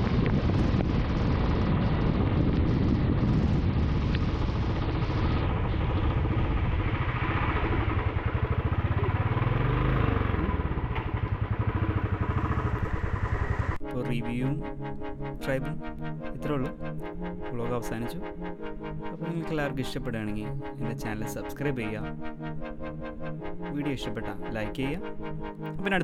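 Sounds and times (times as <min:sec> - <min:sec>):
motorcycle engine running: 0:00.0 - 0:13.8
wind: 0:00.0 - 0:13.8.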